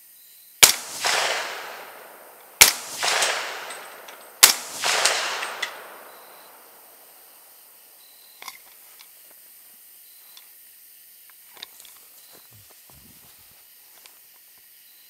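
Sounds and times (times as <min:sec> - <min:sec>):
rifle shots with rolling echo: 0:00.6 - 0:07.8.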